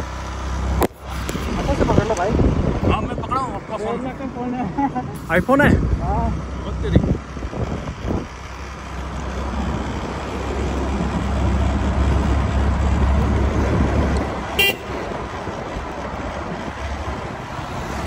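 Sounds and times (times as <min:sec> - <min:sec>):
motor scooter rumble: 0:00.0 - 0:18.0
short horn toot: 0:14.6 - 0:15.0.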